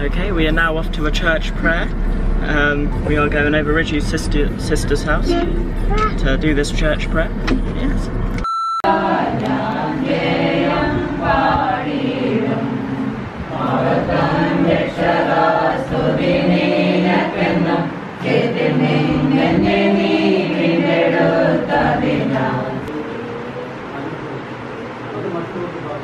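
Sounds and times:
group singing a hymn: 8.8 - 23.4.

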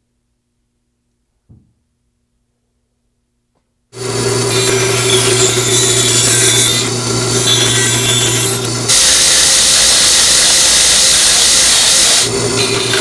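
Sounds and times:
band saw cutting wood: 4.0 - 13.0
belt grinder sanding wood: 4.0 - 13.0.

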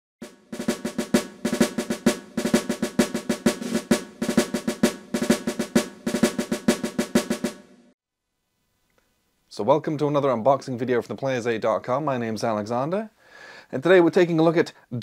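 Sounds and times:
fast snare drumming: 0.2 - 8.0.

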